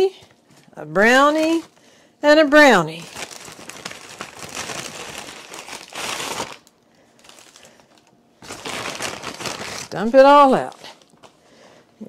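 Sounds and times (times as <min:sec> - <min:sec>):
paper bag rustling and crinkling: 0:02.9 - 0:11.4.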